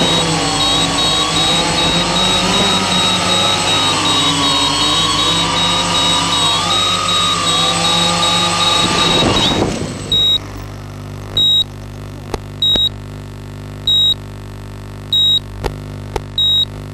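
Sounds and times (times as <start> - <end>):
high electronic beep: 0.0 - 10.4, 11.4 - 11.7, 12.6 - 12.9, 13.9 - 14.2, 15.2 - 15.4, 16.4 - 16.7
rapid high beeping: 0.0 - 10.6, 11.4 - 11.7
electric motors whining: 0.0 - 12.9
steady low hum: 0.0 - 16.9.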